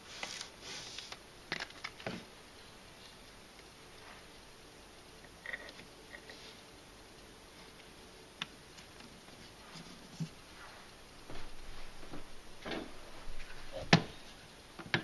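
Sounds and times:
small items clicking and tapping: 1.0s - 2.3s.

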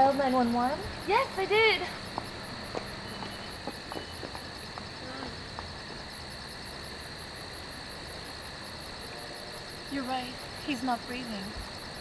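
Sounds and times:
crickets chirping: 0.0s - 12.0s
steady background noise: 0.0s - 12.0s.

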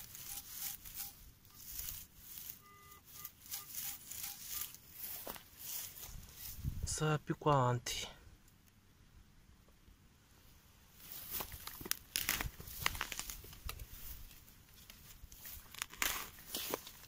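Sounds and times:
hand shovel cutting into turf: 0.0s - 5.9s.

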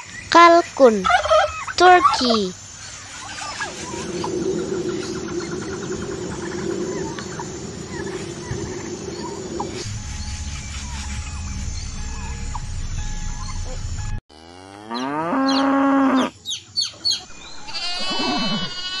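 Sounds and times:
chickens clucking: 1.0s - 9.8s
cow mooing: 14.3s - 16.3s
drawn-out animal call: 17.6s - 19.0s.

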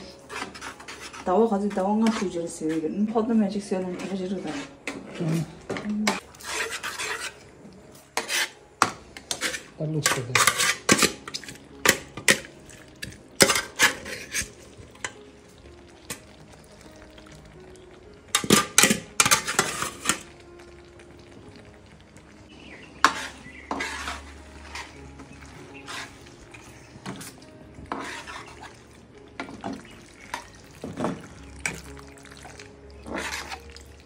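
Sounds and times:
cutlery scraping frying pan: 0.0s - 15.2s, 18.3s - 20.3s, 22.9s - 32.0s, 33.0s - 33.9s.

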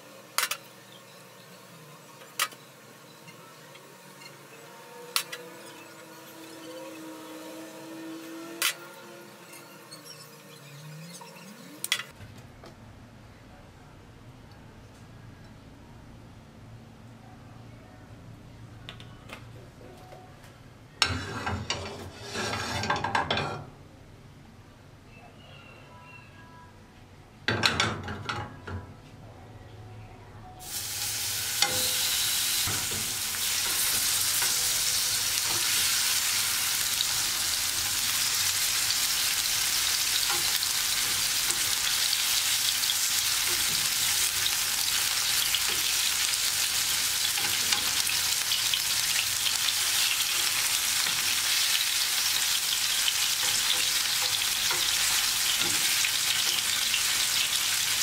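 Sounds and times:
chicken frying in hot oil: 0.0s - 12.1s, 30.6s - 58.0s.

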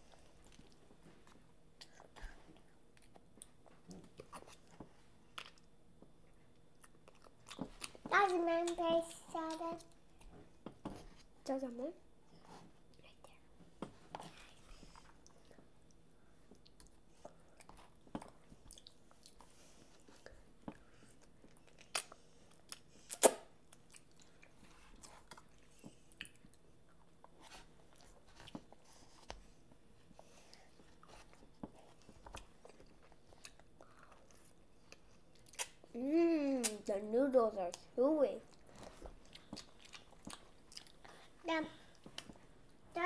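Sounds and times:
chewing and mouth smacks: 6.5s - 8.0s, 14.2s - 19.5s, 21.2s - 28.8s, 31.0s - 35.8s, 38.5s - 41.3s.

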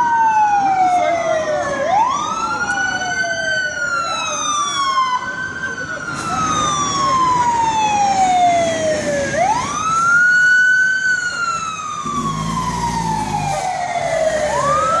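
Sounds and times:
fire engine siren wailing: 0.0s - 15.0s
truck engine rumbling: 5.4s - 15.0s.

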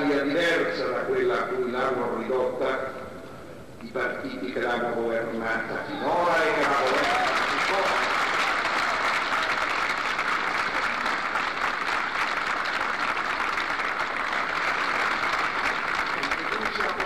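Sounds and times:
crowd applauding: 6.1s - 17.0s.

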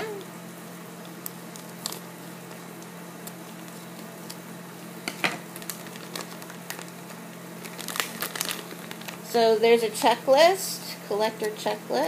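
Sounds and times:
steady low hum: 0.0s - 12.0s
foil crinkling: 1.0s - 9.4s
scissors snipping foil bag: 5.5s - 9.3s.

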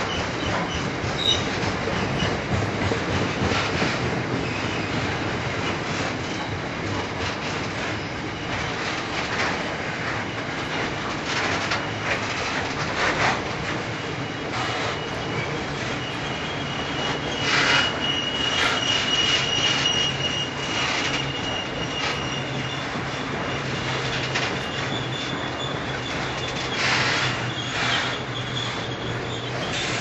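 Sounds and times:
high wheel squeal: 0.0s - 2.4s, 14.0s - 30.0s
train rumble: 0.0s - 30.0s
train wheels clicking over rail joints: 0.0s - 30.0s.

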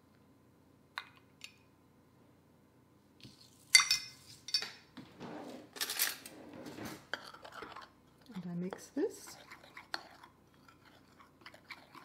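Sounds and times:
metal spoon clinking on glass: 3.7s - 4.8s
utensils clattering on glass: 5.7s - 6.4s.

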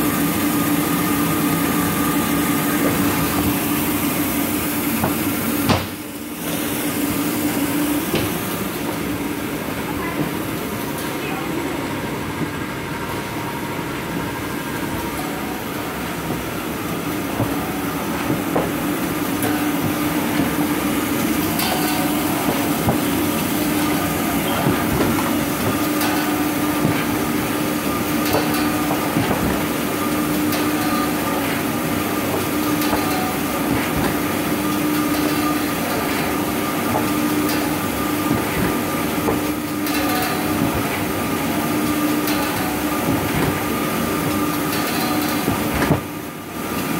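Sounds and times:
factory machinery running: 0.0s - 46.9s
machine clicks and knocks: 17.2s - 46.9s.

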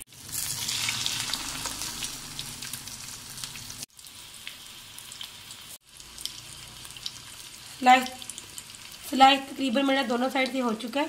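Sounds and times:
bread sizzling in hot oil: 0.0s - 11.0s.

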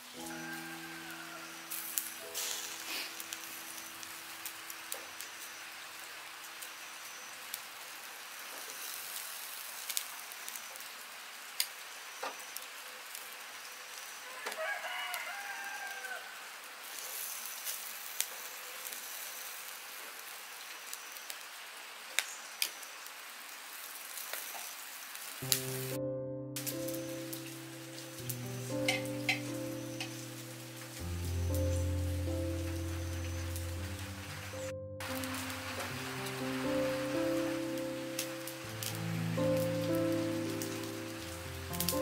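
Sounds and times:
meat sizzling over charcoal: 0.0s - 26.0s, 26.6s - 42.0s
rooster crowing: 0.2s - 2.1s, 14.2s - 16.6s.

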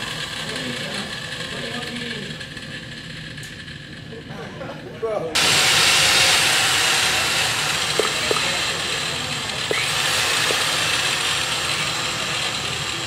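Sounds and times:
gas torch hissing: 5.4s - 13.0s.

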